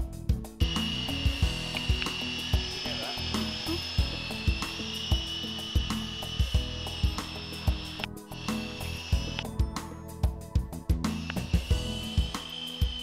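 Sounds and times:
background music with beat: 0.0s - 13.0s
rc helicopter rotors whining: 0.6s - 9.5s, 11.1s - 13.0s.

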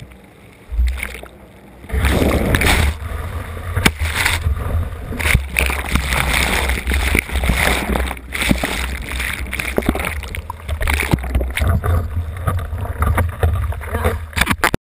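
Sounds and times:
low rumble: 0.0s - 14.4s
muffled underwater surf rushing: 0.0s - 14.6s.

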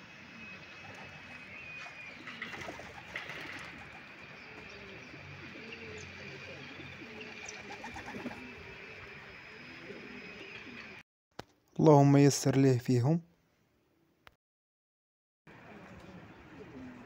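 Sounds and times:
pigeons cooing: 0.8s - 11.0s, 15.7s - 17.0s.

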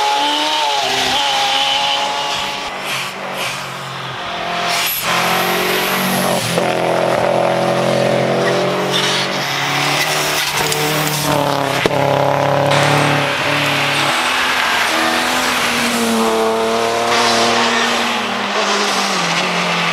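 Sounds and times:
rally car engine driving hard: 0.0s - 19.9s.

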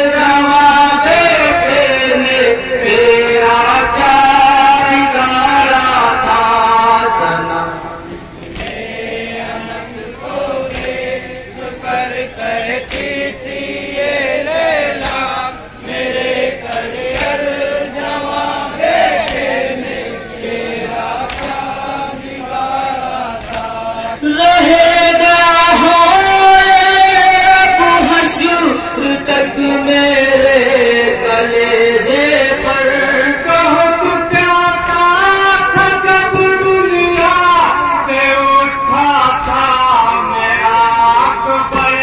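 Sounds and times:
amplified lead voices: 0.0s - 42.0s
men chanting in chorus: 0.0s - 42.0s.

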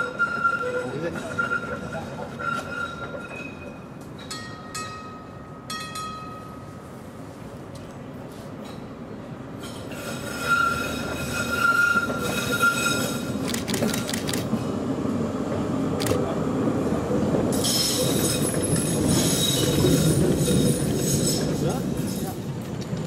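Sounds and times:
tram wheels squealing: 0.0s - 5.0s, 9.6s - 14.8s, 17.4s - 23.0s
wheels rumbling on rails: 0.0s - 23.0s.

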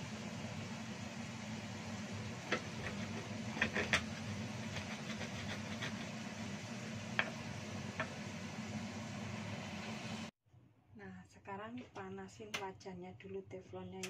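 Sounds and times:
stone pestle grinding in mortar: 2.5s - 6.2s.

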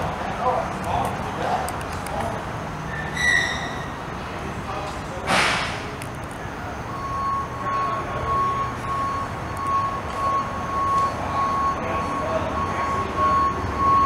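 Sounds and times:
vehicle reversing alarm beeping: 6.5s - 14.0s.

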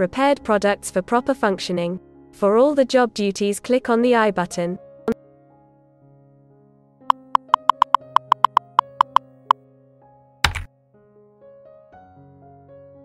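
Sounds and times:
keyboard typing clicks: 7.1s - 9.2s
soft synthesizer music: 7.1s - 9.2s.

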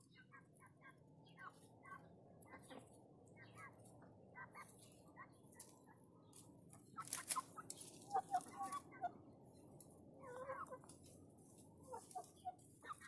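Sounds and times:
birds clucking and chirping: 0.0s - 13.0s.

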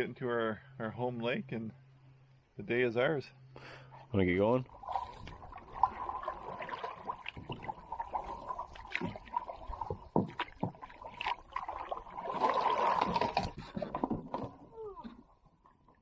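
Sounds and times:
small waves lapping: 4.7s - 15.4s
gear knocking against canoe hull: 9.8s - 11.0s.

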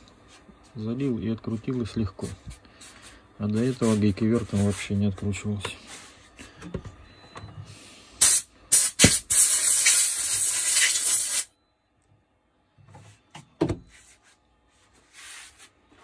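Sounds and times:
aerosol spray can spraying: 8.2s - 11.5s.

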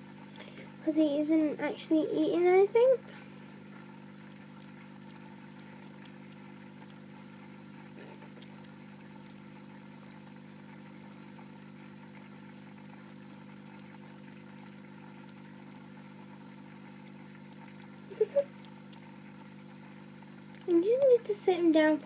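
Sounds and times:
low electrical hum: 0.0s - 22.0s
faint small clicks and ticks: 4.1s - 21.4s.

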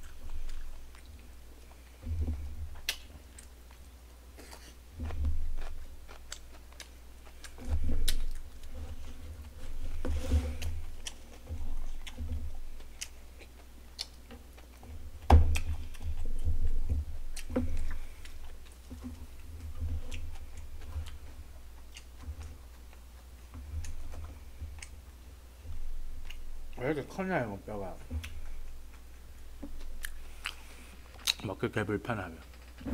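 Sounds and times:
close chewing and lip-smacking: 0.0s - 26.9s, 27.9s - 31.6s
wet mouth clicks: 2.8s - 3.6s, 29.8s - 31.5s.

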